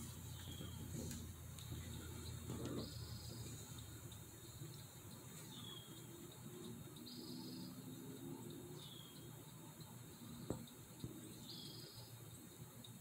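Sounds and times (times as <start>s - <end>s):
small bird calling: 0.2s - 1.2s, 1.8s - 3.8s, 5.4s - 6.2s, 11.3s - 12.2s.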